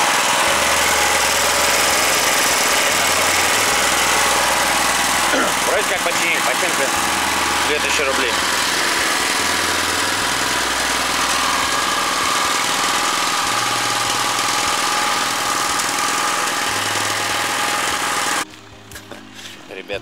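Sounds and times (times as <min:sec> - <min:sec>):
small petrol engine idling: 0:00.0 - 0:18.5.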